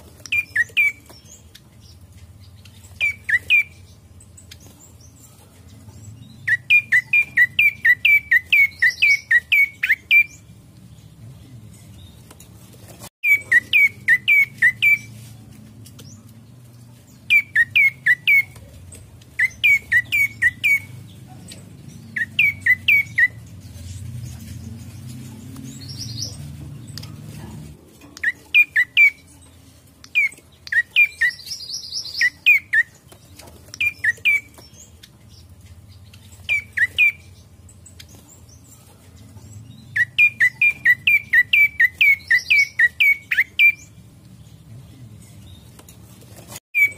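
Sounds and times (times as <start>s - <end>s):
bird chirping: 0.0s - 46.9s.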